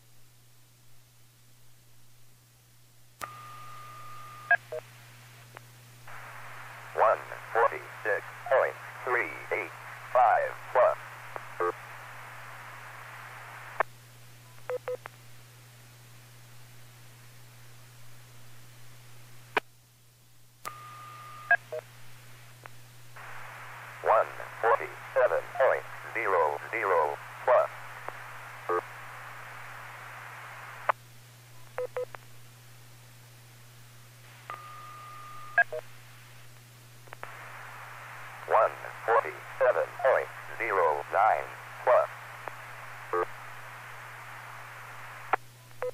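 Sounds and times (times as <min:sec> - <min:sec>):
radio hiss: 0:04.7 - 0:13.9, 0:21.7 - 0:31.0, 0:34.2 - 0:34.6, 0:35.4 - 0:45.5.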